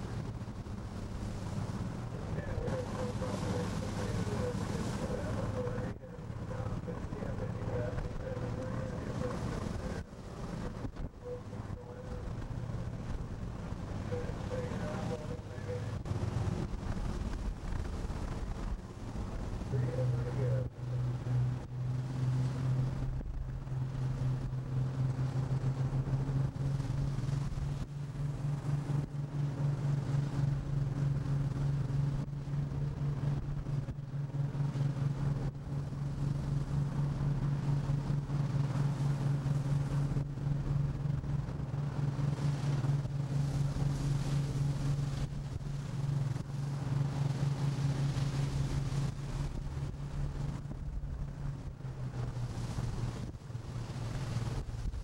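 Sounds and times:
boat diesel engine droning: 0.0s - 55.0s
waves breaking: 0.0s - 55.0s
wind and sea hiss: 0.0s - 55.0s
wind gusting on microphone: 15.8s - 19.8s.

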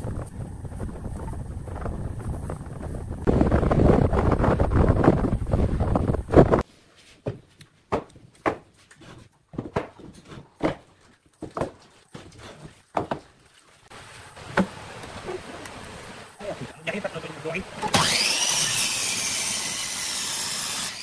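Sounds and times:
loud wind-like noise: 0.0s - 6.6s.

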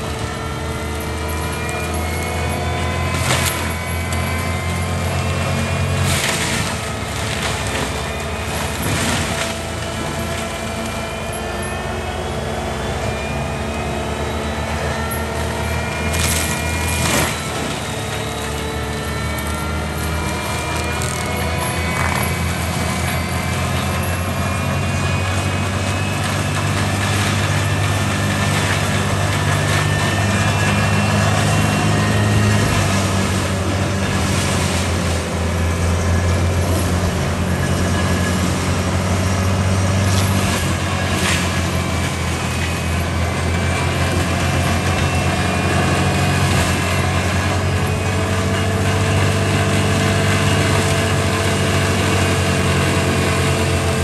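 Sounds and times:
diesel engine droning: 0.0s - 54.0s
mulcher drum whining: 0.0s - 54.0s
wood cracking: 1.0s - 11.2s, 15.2s - 35.4s.

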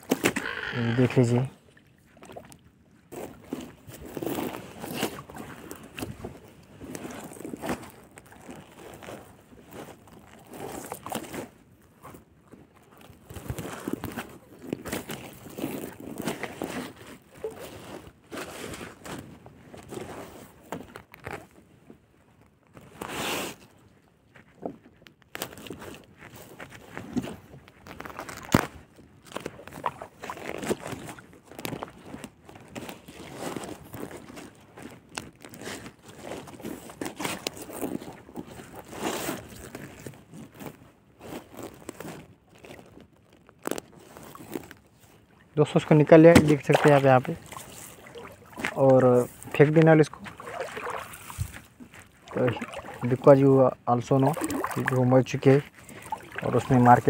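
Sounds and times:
netting and plastic rustling: 3.1s - 23.8s, 24.4s - 57.0s
net and plastic sheet rustling: 45.8s - 57.0s.

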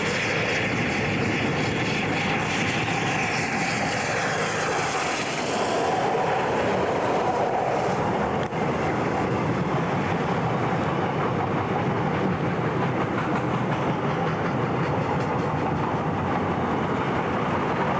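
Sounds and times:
freight train rumbling by: 0.0s - 17.9s
wheels clicking over rail joints: 10.0s - 17.9s.

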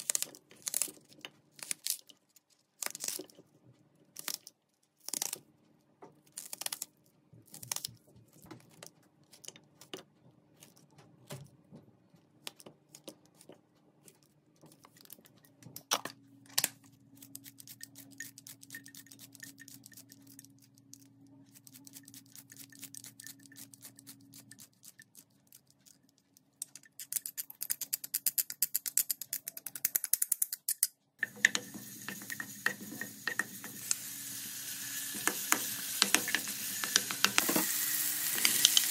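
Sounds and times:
scissors snipping onion: 2.8s - 3.3s, 4.2s - 5.4s
garlic sizzling in hot oil: 31.2s - 38.9s.

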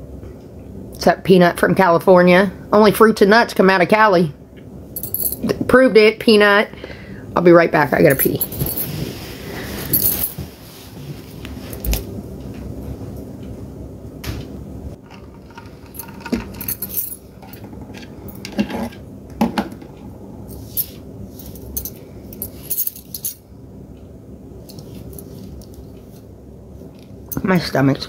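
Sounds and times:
metallic jingling and clinking: 5.0s - 5.4s, 9.8s - 10.4s, 15.0s - 18.4s, 20.5s - 23.4s
rustling: 8.4s - 12.2s.

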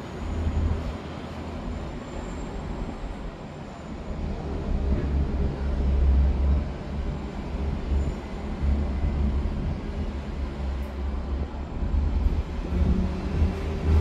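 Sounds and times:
gondola cabin rumble: 3.9s - 14.0s.

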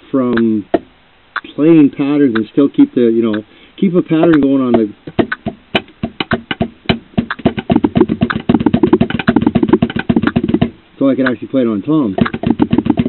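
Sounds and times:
drums played with sticks: 4.3s - 10.8s, 12.2s - 13.0s.

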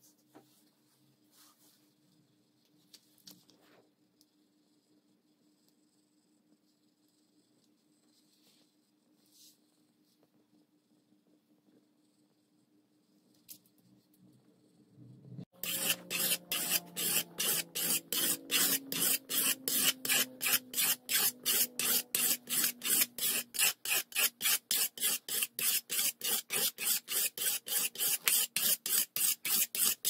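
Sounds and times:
sanding block rasping on steel: 15.6s - 30.0s.

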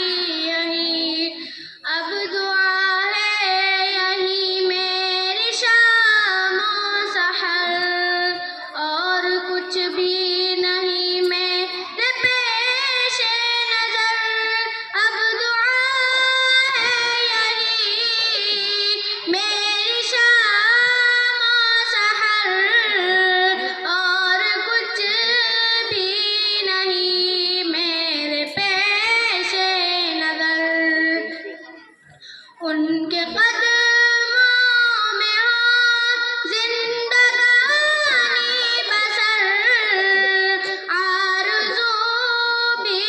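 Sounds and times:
girl singing into a microphone: 0.0s - 43.0s.

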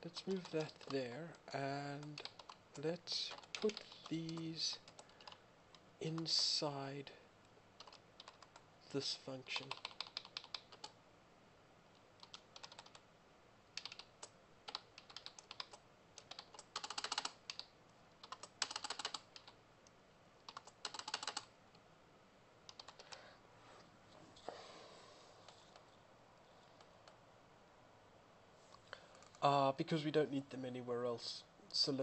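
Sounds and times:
computer keyboard typing: 0.1s - 1.1s, 1.8s - 6.4s, 7.8s - 8.6s, 9.6s - 11.0s, 12.2s - 13.0s, 13.7s - 19.6s, 20.4s - 21.5s, 22.7s - 23.2s.

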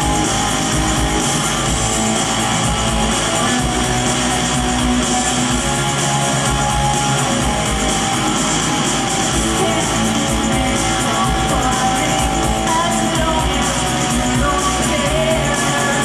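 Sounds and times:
bass: 0.0s - 16.0s
drums: 0.0s - 16.0s
electric guitars: 0.0s - 16.0s
woman singing: 9.4s - 16.0s.

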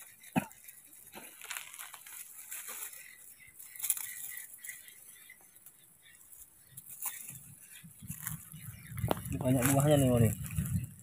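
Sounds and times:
dry leaves rustling and crackling: 0.0s - 11.0s
twigs snapping: 1.0s - 3.0s, 3.6s - 4.5s, 6.8s - 7.4s, 8.1s - 10.8s.

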